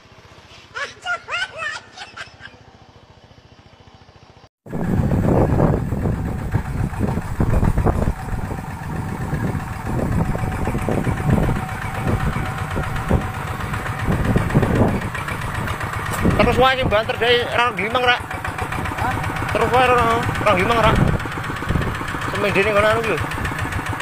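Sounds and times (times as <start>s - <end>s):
walking tractor engine knocking: 4.7s - 24.0s.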